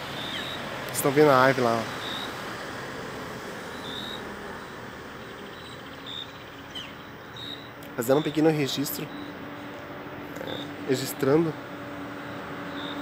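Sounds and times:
outdoor background hiss: 0.0 - 13.0
high-pitched peeps: 3.7 - 9.4, 10.3 - 10.8.

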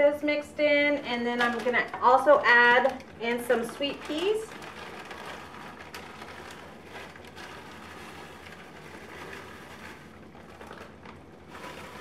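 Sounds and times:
plastic bag crinkling: 1.3 - 12.0
frozen peas pattering into skillet: 1.4 - 12.0.

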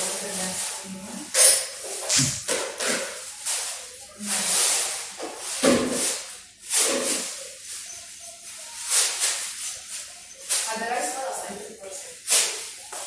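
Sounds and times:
cat hissing: 2.1 - 2.4.

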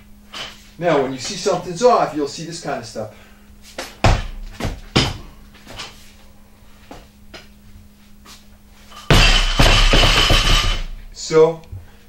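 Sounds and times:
feet thudding on gym floor: 3.7 - 6.0.

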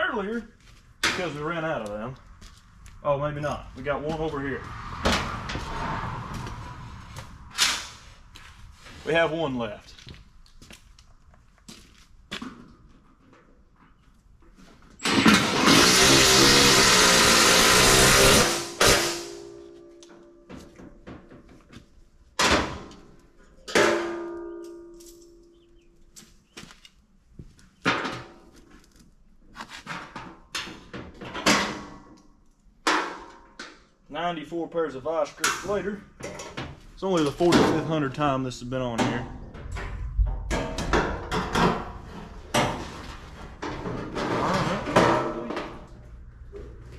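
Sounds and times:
cordless drill driving screw into metal: 15.1 - 19.1.

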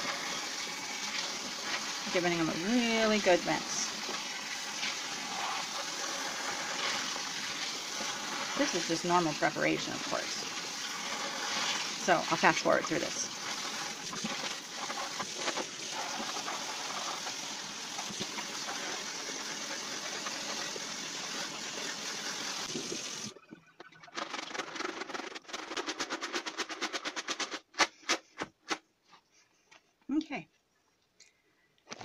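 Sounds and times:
beans rattling in colander: 0.0 - 23.3, 24.1 - 28.1
tap water running over beans: 0.0 - 23.4.

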